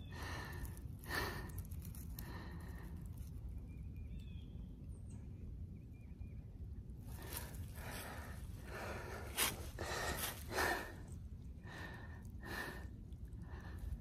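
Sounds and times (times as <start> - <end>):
person breathing hard: 0.0 - 3.2, 7.1 - 14.0.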